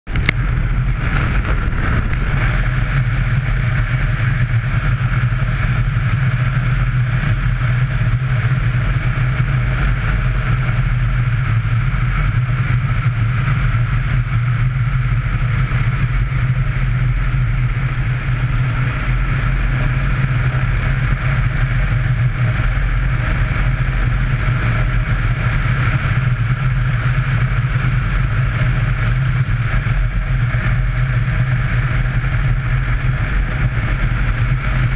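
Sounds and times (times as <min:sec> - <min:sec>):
motorcycle engine cruising: 0:00.1 - 0:34.9
road noise: 0:00.1 - 0:34.9.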